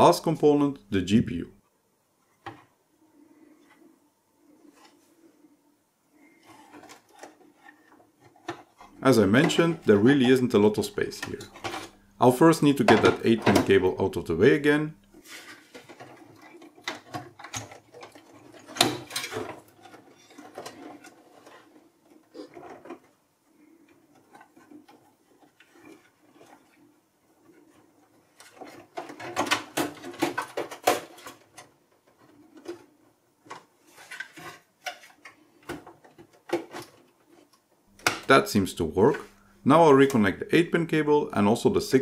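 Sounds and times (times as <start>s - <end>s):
clicks and knocks inside computer case: 28.6s - 31.7s.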